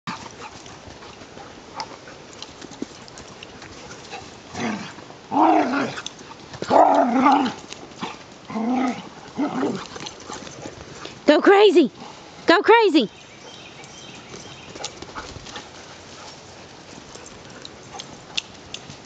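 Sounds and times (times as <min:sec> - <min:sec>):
dogs growling and barking: 0:00.1 - 0:11.2
dogs scuffling: 0:00.1 - 0:11.3, 0:13.1 - 0:19.0.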